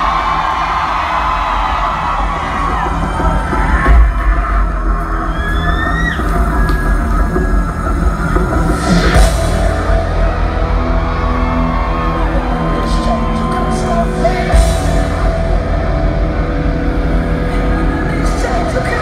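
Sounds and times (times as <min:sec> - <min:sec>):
metal band playing live: 0:00.0 - 0:19.0
person singing: 0:12.0 - 0:15.8, 0:17.4 - 0:19.0.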